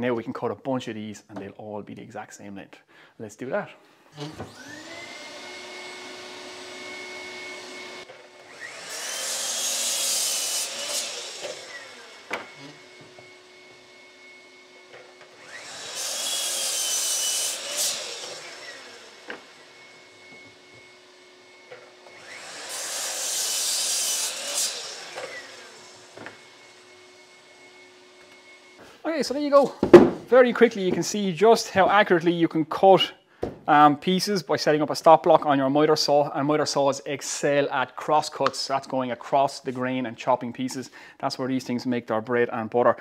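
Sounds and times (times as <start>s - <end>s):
mitre saw cutting wood: 4.1s - 28.8s
shop vacuum humming: 4.1s - 31.2s.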